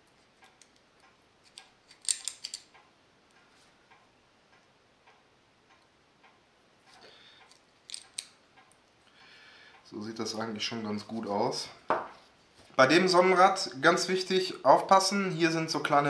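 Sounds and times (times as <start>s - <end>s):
metal parts clicking together: 1.4s - 2.8s, 7.4s - 8.4s.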